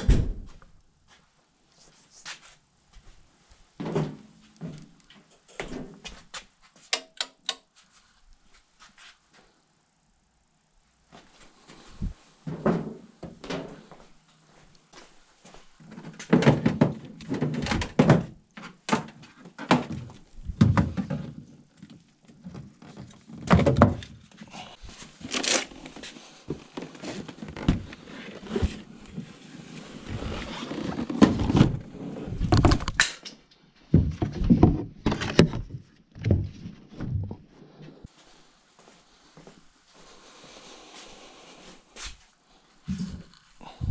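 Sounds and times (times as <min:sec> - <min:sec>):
plastic crate knocks and thumps: 0:16.3 - 0:21.4, 0:23.4 - 0:24.1, 0:33.9 - 0:37.4
scraping and rustling: 0:24.8 - 0:32.9.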